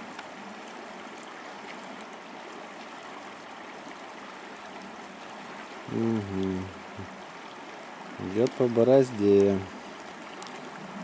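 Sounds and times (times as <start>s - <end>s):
river rushing over stones: 0.0s - 11.0s.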